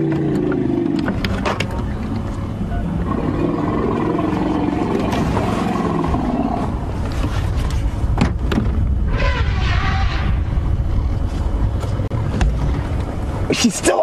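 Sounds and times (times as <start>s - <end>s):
elephant roaring: 0.0s - 1.2s, 2.9s - 7.2s, 9.1s - 10.6s.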